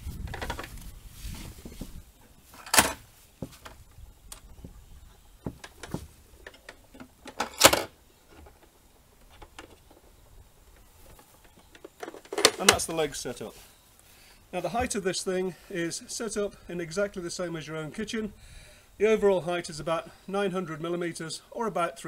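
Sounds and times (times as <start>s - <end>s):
rustling: 0.0s - 15.4s.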